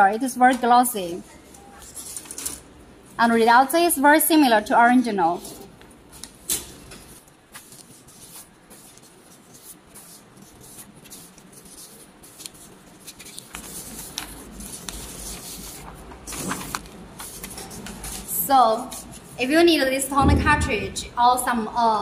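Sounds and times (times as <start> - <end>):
paper sheets rustling: 5.4 - 18.3
low rumble: 20.2 - 21.2.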